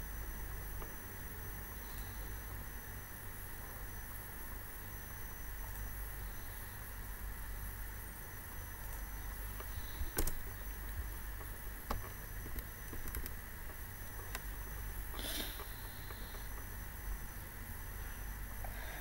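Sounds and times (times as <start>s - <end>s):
microphone hum and hiss: 0.0s - 19.0s
short breathy hiss: 9.7s - 10.4s, 15.1s - 16.6s.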